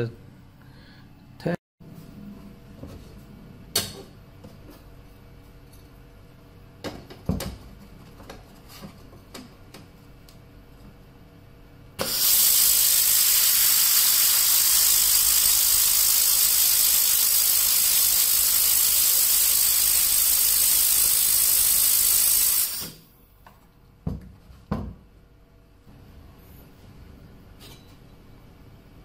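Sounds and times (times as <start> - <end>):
laser welder hissing: 12.0 - 23.1.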